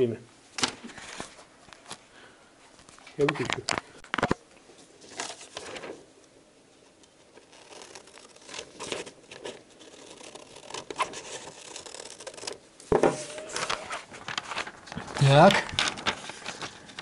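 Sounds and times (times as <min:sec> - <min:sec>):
paper rustling: 0:02.8 - 0:06.1, 0:07.3 - 0:17.0
scissors snipping paper: 0:07.4 - 0:12.6.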